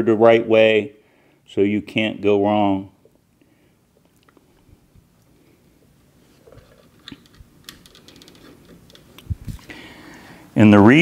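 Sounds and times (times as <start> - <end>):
wires rustling: 4.0 - 10.1
plastic connectors clicking: 6.8 - 9.3.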